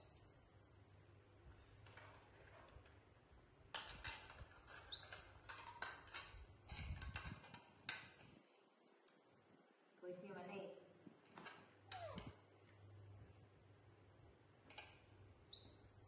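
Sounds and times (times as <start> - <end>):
baby monkey squeak: 4.9 - 5.3, 15.5 - 16.0.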